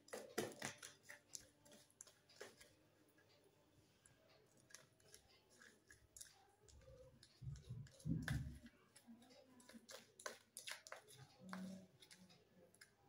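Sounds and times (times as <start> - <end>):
plastic spoon scraping in cup: 4.6 - 12.8.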